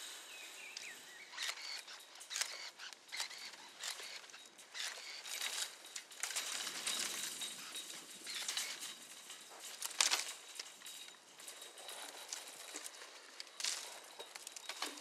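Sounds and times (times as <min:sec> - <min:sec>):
bird chirps: 0:00.2 - 0:05.3
dry vine canes rustling and snapping: 0:00.2 - 0:15.0.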